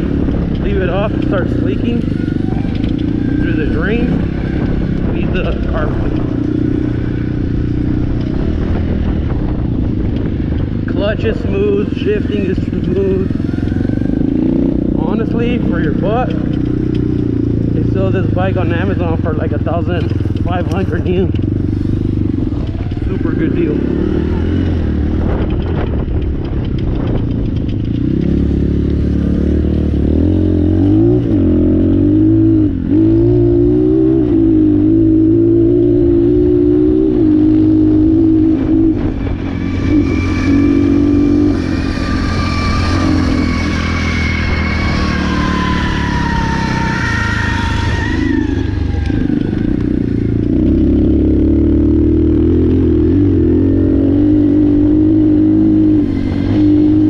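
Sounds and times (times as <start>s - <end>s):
dirt bike engine: 0.0s - 57.0s
high-pitched whine: 31.4s - 50.4s.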